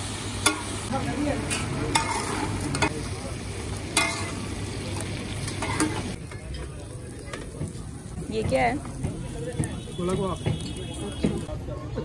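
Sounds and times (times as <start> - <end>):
meat sizzling in oil: 0.0 - 11.5
spatula clacking on griddle: 0.4 - 0.7, 1.4 - 3.0, 3.9 - 4.4, 5.4 - 11.5
metal spatulas scraping and chopping: 1.4 - 3.0, 4.0 - 4.4.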